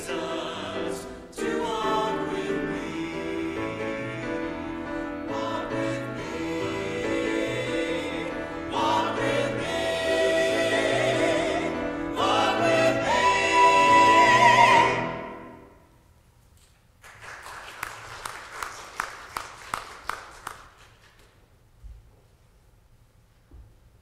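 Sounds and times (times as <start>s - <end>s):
choir singing: 0.0s - 15.8s
light scattered clapping: 17.0s - 21.4s.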